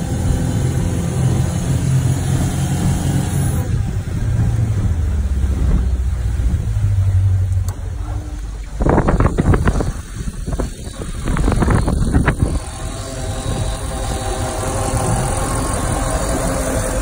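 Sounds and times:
boat engine idling: 0.0s - 17.0s
engine hatch rushing and knocking: 7.6s - 12.7s.

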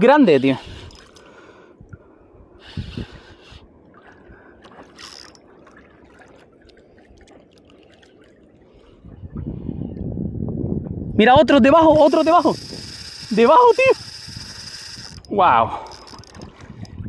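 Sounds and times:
fishing reel clicking: 0.4s - 1.3s, 5.0s - 5.4s, 11.9s - 16.6s
water lapping against kayak hull: 0.6s - 9.5s, 12.0s - 17.0s
short splashes: 3.9s - 8.6s.

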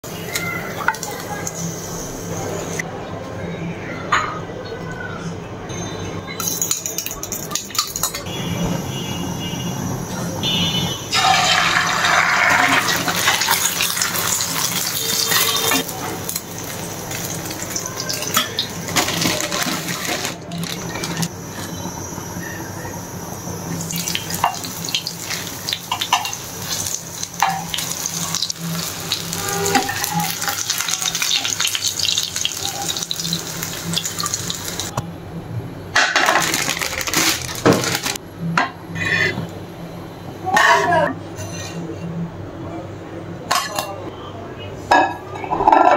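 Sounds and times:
water running in sink: 0.0s - 2.8s, 11.1s - 35.0s
dishes and utensils clinking: 5.7s - 8.3s, 11.2s - 21.8s, 24.0s - 33.4s, 43.5s - 44.0s, 44.9s - 45.9s.

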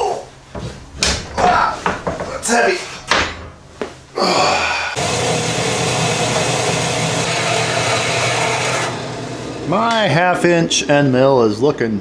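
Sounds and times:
bandsaw cutting steel: 5.0s - 9.5s.

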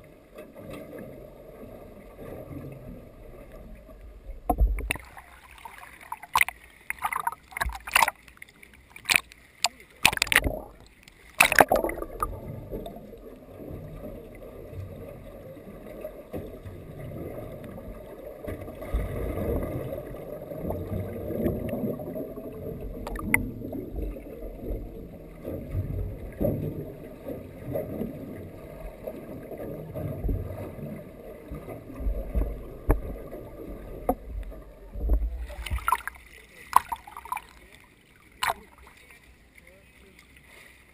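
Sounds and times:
underwater sloshing rumble: 0.0s - 40.9s
camera splashing into water: 4.7s - 12.4s, 35.6s - 37.7s, 38.4s - 38.9s.

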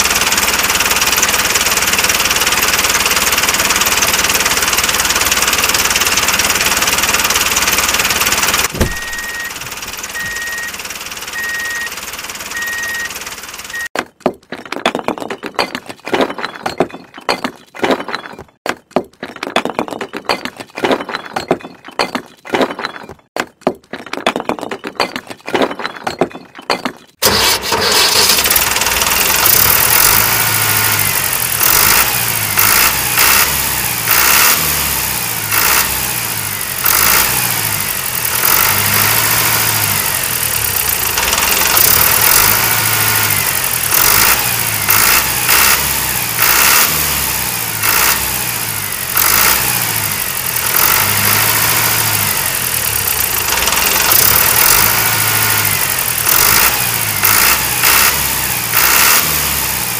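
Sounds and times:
diesel tractor engine revving: 0.0s - 14.0s, 27.2s - 59.9s.

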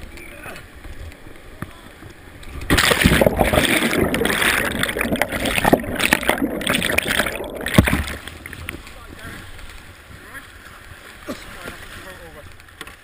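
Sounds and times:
underwater churning bubbling water: 2.6s - 8.9s
loud crash of water: 2.7s - 8.6s
whitewater rushing: 2.7s - 8.6s.

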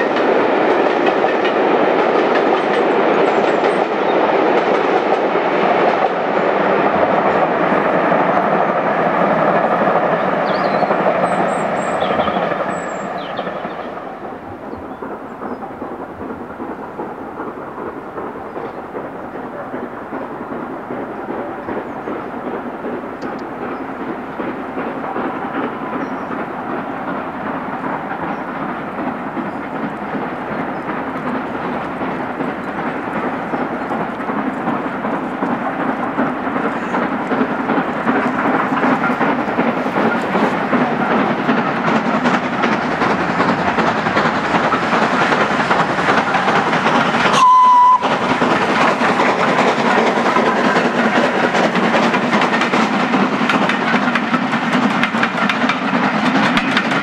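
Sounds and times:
steam locomotive rumbling: 0.0s - 57.0s
train whistle blast: 47.3s - 48.2s.

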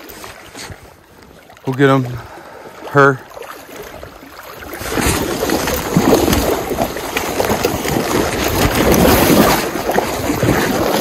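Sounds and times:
fish thrashing water splashing: 3.2s - 11.0s.

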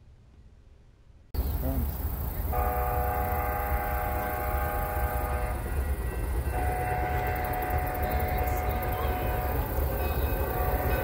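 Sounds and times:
steam whistle chord: 2.5s - 11.0s.

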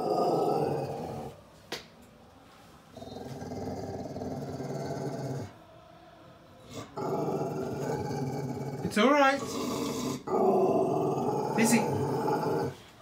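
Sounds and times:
dog growling low: 0.0s - 1.4s, 3.0s - 5.6s, 6.6s - 12.8s.

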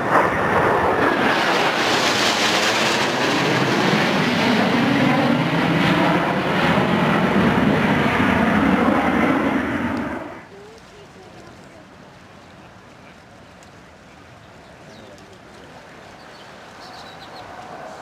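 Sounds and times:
jets flying overhead: 0.0s - 10.5s, 15.7s - 18.0s.

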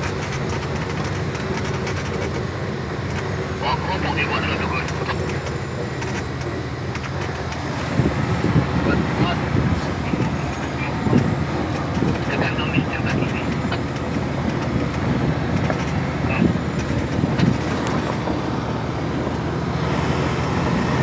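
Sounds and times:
knocks and rattles: 0.0s - 3.4s, 13.4s - 18.4s
tyres rumbling on gravel: 0.0s - 21.0s
vehicle engine hum: 0.0s - 21.0s.

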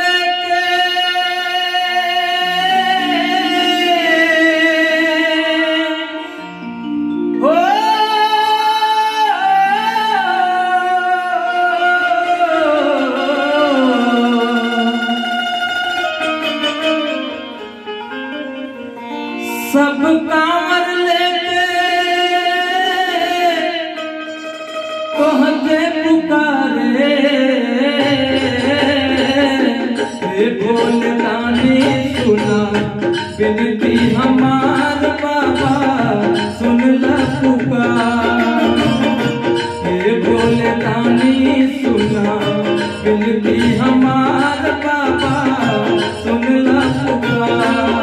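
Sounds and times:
man singing: 0.0s - 16.0s, 19.3s - 24.5s, 25.1s - 48.0s
keyboard playing devotional melody: 0.0s - 48.0s
drum loop: 28.0s - 48.0s.

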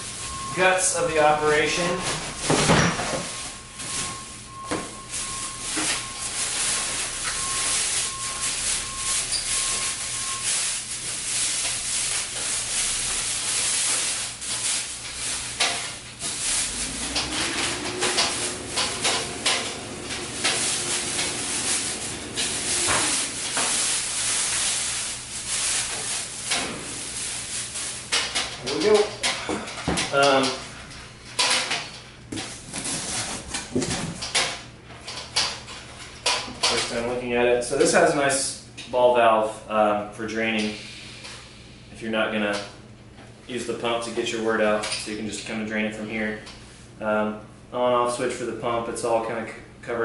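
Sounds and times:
plastic wrapping crinkling: 3.2s - 29.1s.

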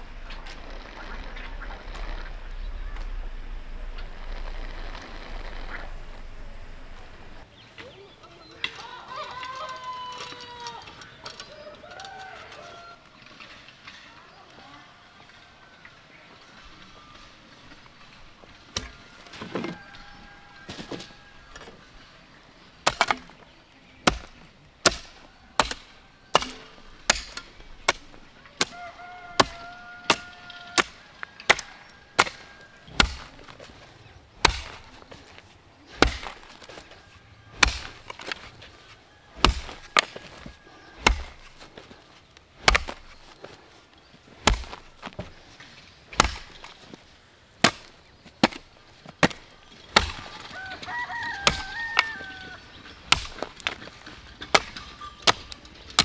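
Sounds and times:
wood chopping strokes: 22.8s - 47.0s, 47.6s - 56.0s.

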